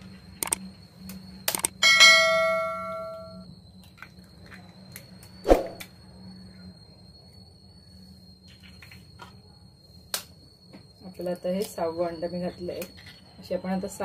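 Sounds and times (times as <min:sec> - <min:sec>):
bright bell ding: 0:01.8 - 0:03.4.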